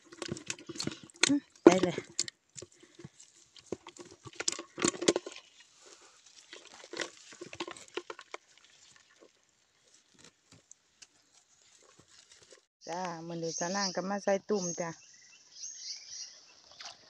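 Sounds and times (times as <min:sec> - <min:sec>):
fish flapping and splashing in water: 0:00.0 - 0:12.7.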